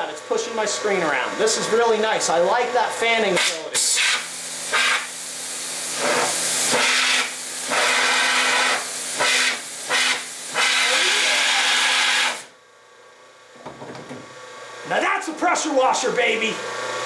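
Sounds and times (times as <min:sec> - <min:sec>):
pressure washer water hiss: 0:03.4 - 0:12.5.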